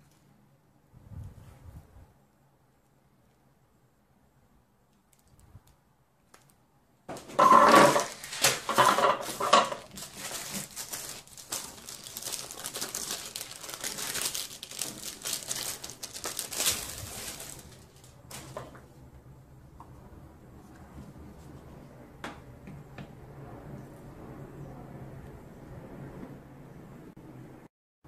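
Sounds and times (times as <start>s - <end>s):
plastic packaging crinkling: 6.2s - 18.8s.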